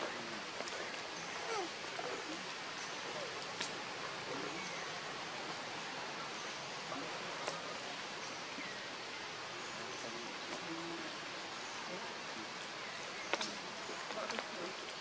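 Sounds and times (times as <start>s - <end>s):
outdoor background hiss: 0.0s - 15.0s
faint sharp clicks: 3.4s - 3.8s, 10.4s - 10.7s, 13.3s - 15.0s.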